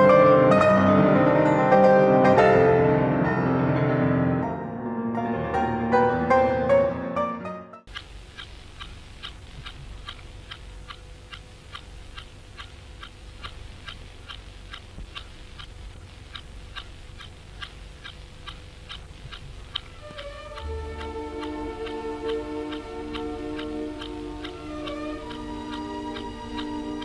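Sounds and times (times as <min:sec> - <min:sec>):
piano music: 0:00.0 - 0:07.9, 0:20.0 - 0:27.0
clock ticking: 0:07.9 - 0:27.0
faint steady hum: 0:07.9 - 0:27.0.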